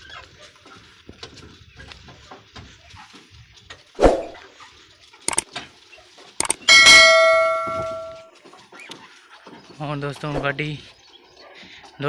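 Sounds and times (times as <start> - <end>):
cart rattling on dirt track: 4.6 - 10.3
mouse-click sound effects: 6.4 - 6.7.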